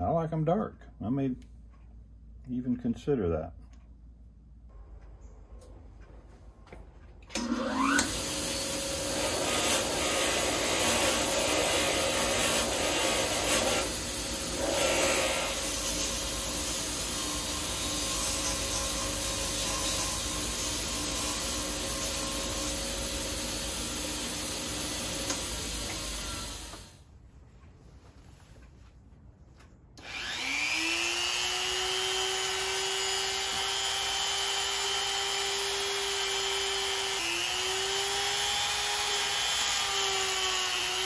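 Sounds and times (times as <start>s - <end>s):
bench grinder motor whine: 7.3s - 11.9s, 30.0s - 41.0s.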